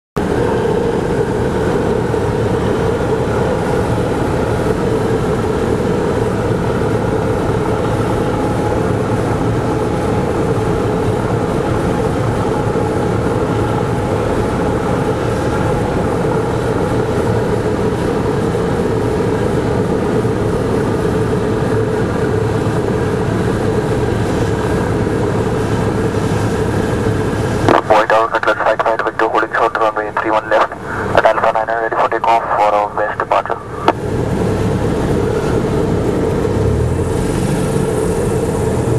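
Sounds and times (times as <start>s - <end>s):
aircraft engine droning: 0.2s - 38.9s.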